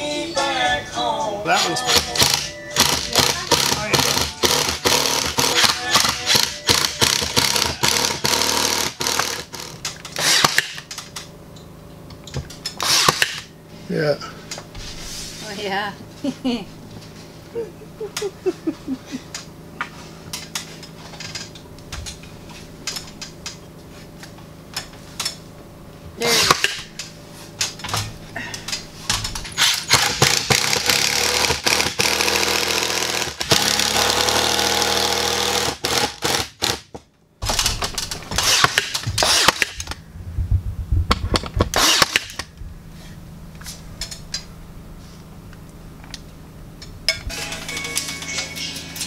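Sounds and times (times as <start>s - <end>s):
cordless drill driving screws: 1.9s - 10.7s, 12.8s - 13.4s, 29.6s - 36.8s, 41.8s - 42.4s.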